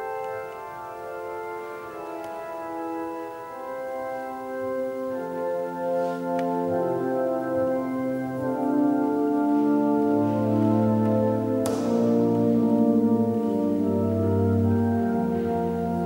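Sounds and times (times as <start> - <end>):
organ playing sustained chords: 0.0 - 16.0.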